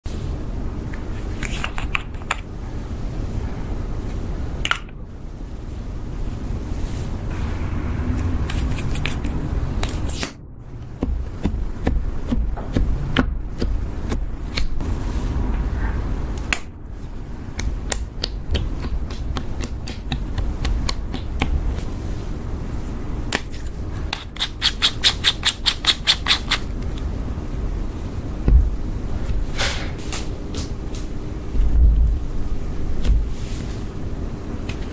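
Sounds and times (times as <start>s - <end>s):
low rumble: 2.7s - 9.8s, 14.3s - 17.5s, 26.9s - 29.5s, 31.4s - 33.4s.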